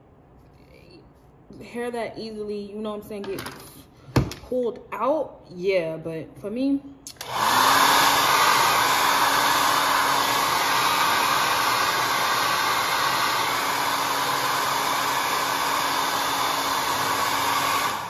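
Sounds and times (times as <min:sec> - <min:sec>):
hair dryer blowing: 0:07.1 - 0:18.0.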